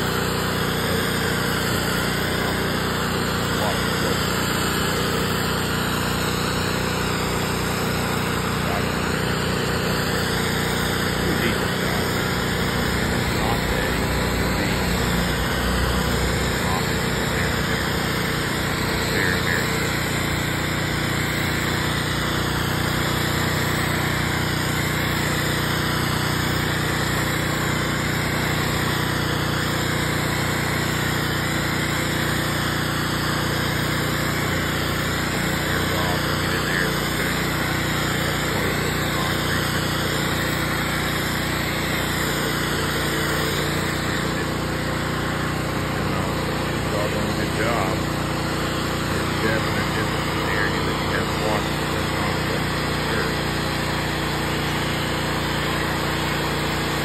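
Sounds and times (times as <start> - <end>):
pressure washer engine humming: 0.0 - 57.0
water spray hissing on concrete: 16.6 - 46.9.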